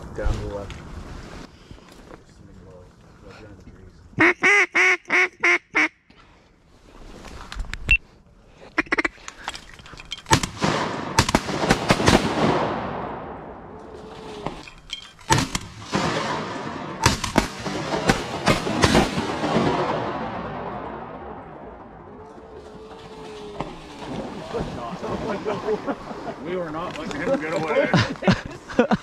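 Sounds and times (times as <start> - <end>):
duck call quacks: 4.2 - 6.0, 8.8 - 9.1
shotgun shots echoing: 10.3 - 13.7, 15.3 - 22.0.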